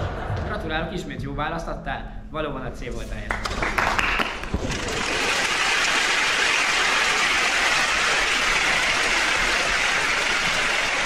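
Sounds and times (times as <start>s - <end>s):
audience applauding: 3.3s - 11.0s.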